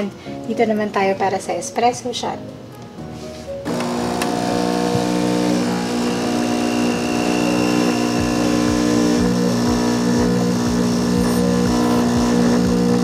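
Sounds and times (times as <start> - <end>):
espresso machine pump buzzing: 3.7 - 13.0.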